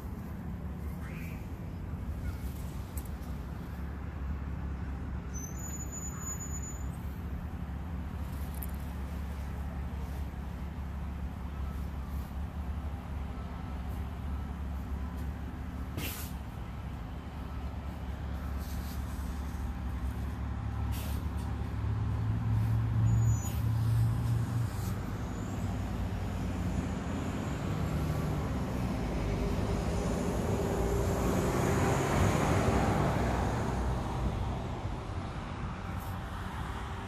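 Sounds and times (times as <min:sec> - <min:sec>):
traffic engine rumble: 0:00.0 - 0:37.0
vehicle passing: 0:15.5 - 0:37.0.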